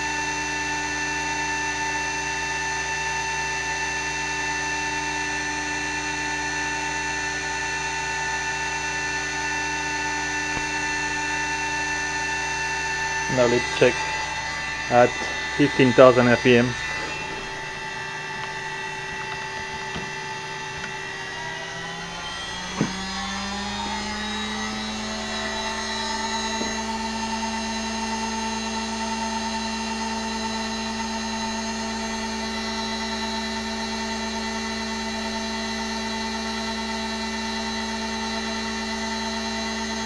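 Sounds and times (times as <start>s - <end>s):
spindle motor whining: 0.0s - 40.0s
low hum: 9.9s - 28.4s.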